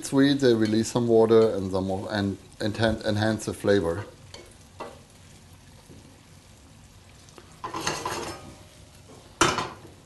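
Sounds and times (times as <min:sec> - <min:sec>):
onions sizzling in frying pan: 0:00.0 - 0:10.0
onions sliding across pan: 0:03.6 - 0:10.0.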